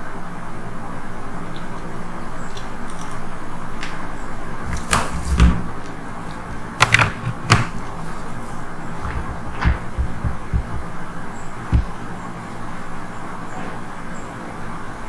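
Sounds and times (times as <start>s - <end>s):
steady background hiss: 0.0s - 15.0s
sharp knocks and clicks: 6.8s - 7.9s, 9.0s - 12.0s.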